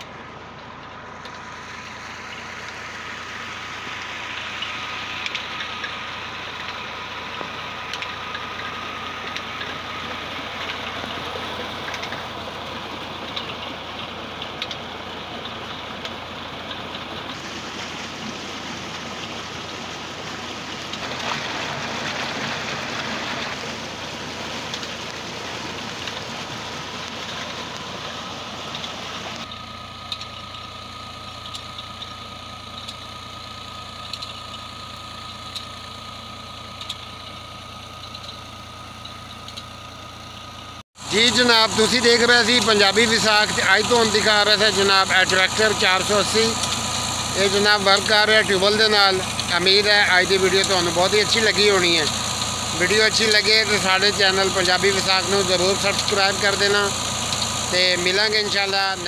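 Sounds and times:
tractor diesel engine running: 0.0 - 59.0
water splashing into tank: 17.3 - 27.8.

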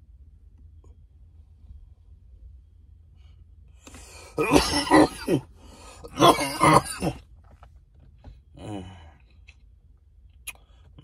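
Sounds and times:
man coughing hard: 4.3 - 7.2.

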